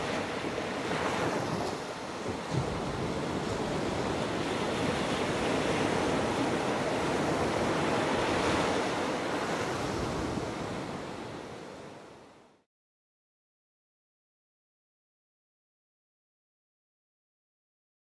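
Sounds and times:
waves washing up a beach: 0.0s - 12.7s.

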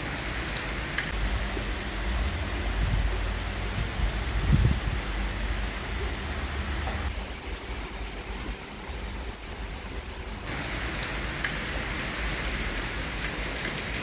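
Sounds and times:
raindrops ticking: 0.0s - 4.2s, 10.4s - 14.0s
heavy rain hissing: 0.0s - 14.0s.

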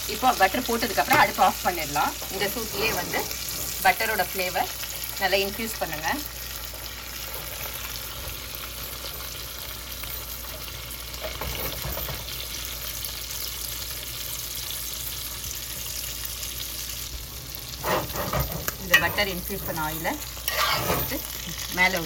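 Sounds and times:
steak sizzling in butter: 0.0s - 22.0s
spatula scraping through butter: 2.5s - 3.8s, 17.7s - 19.4s, 20.3s - 21.3s.

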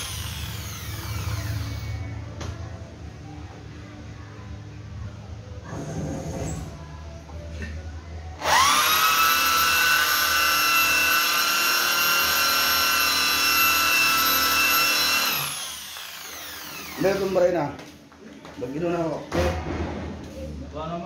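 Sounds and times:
cordless drill motor whining: 0.0s - 2.0s, 8.4s - 17.5s.

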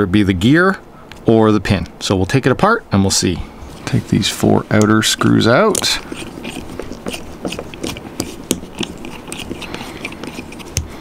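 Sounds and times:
small tool ticks and scrapes: 5.6s - 10.9s.

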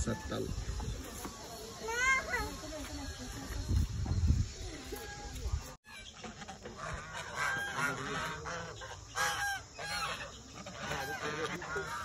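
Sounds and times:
geese honking: 5.8s - 12.0s.

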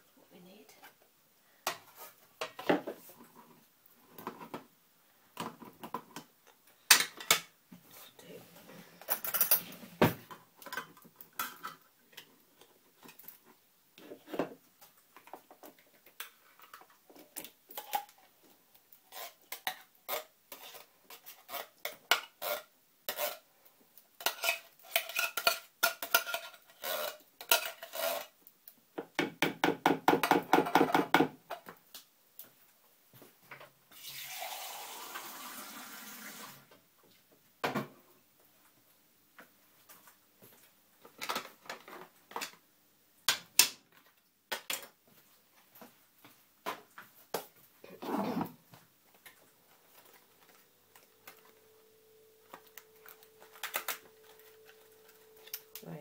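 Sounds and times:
metal tins clinking and scraping: 24.2s - 28.3s.

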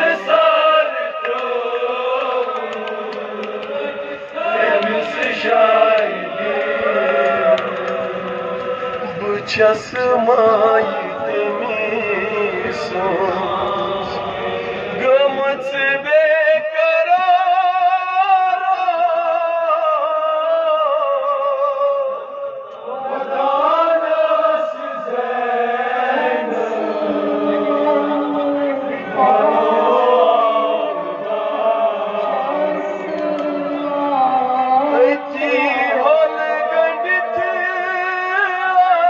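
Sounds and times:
man chanting a lament: 8.6s - 22.4s, 33.2s - 39.0s.

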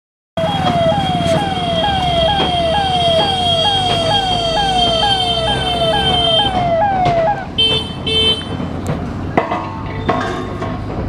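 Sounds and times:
steady high-pitched tone: 0.4s - 7.5s
electronic siren falling tone: 0.4s - 7.6s.

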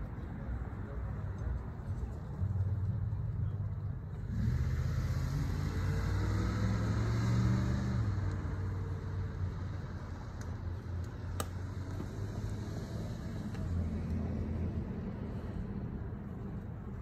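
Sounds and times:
car driving past: 4.2s - 15.9s.

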